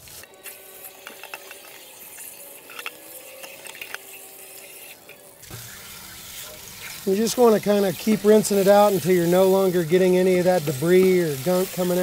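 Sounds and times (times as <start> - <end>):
water pouring out: 0.0 - 12.0
water spraying in a tank: 0.0 - 12.0.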